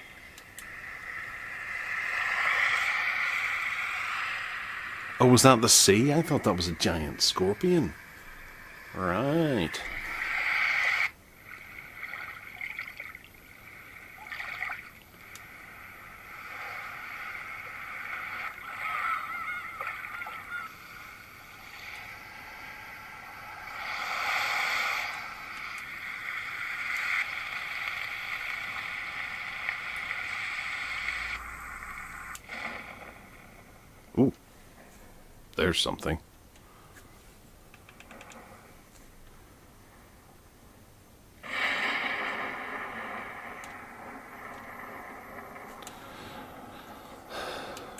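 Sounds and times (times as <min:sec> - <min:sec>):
water-like rushing noise from speaker: 0:00.7 - 0:34.2.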